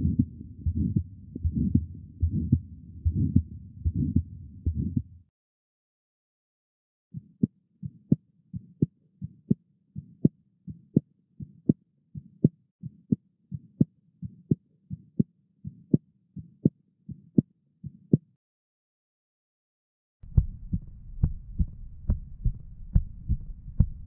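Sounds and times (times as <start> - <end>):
heartbeat with valve clicks: 0.0 - 5.1, 20.3 - 24.0.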